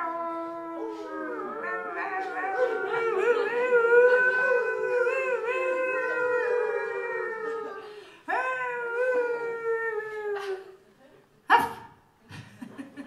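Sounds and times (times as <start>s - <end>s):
woman howling like a wolf: 0.0s - 10.4s.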